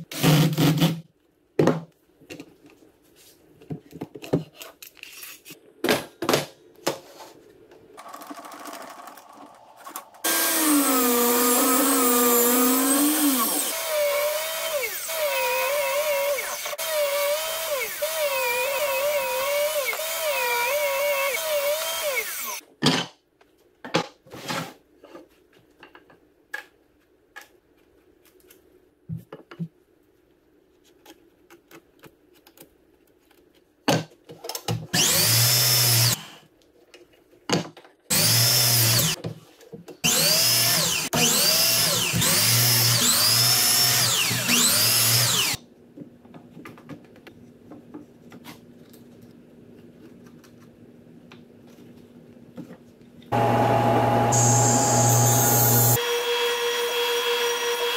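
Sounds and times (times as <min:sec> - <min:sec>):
power drill running: 0:10.2 - 0:22.6, 0:35.0 - 0:36.3, 0:38.1 - 0:39.2, 0:40.0 - 0:45.6, 0:53.4 - 0:57.9
table saw cutting wood: 0:10.2 - 0:22.6, 0:35.0 - 0:36.4, 0:38.1 - 0:39.2, 0:40.1 - 0:45.6, 0:53.3 - 0:57.9.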